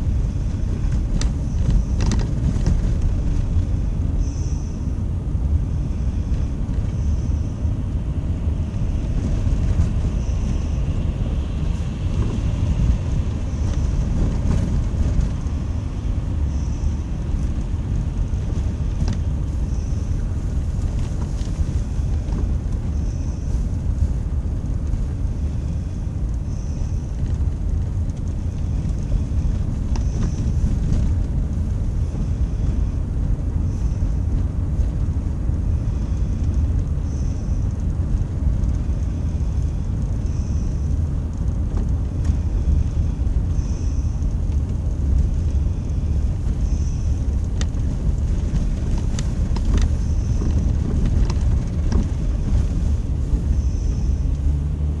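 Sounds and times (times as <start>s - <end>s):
car driving on snow: 0.0s - 55.0s.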